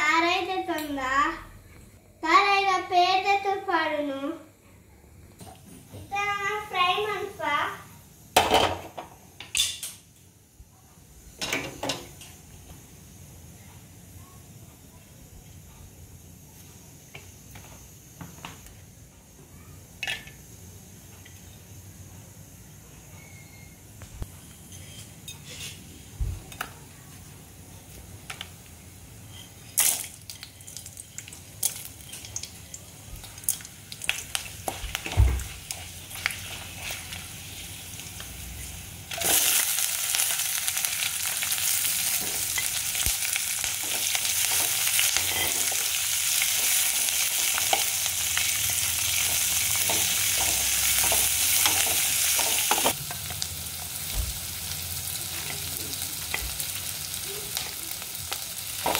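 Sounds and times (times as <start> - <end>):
onions sizzling in oil: 5.4 - 58.9
hot oil crackling: 27.4 - 58.9.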